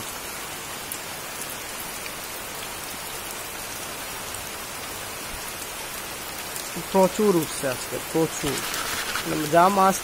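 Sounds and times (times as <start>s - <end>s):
crabs crawling crackling rustle: 8.2s - 9.7s.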